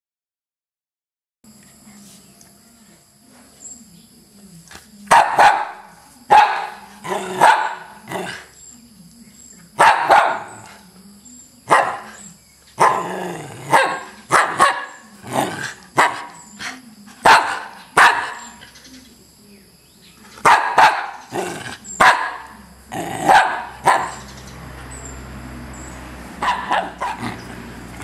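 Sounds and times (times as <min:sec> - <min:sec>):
small dog barking: 0:05.1 - 0:08.4, 0:09.8 - 0:10.8, 0:11.7 - 0:12.2, 0:12.8 - 0:15.4, 0:16.0 - 0:16.5, 0:17.2 - 0:18.6, 0:20.4 - 0:24.3, 0:26.4 - 0:27.6.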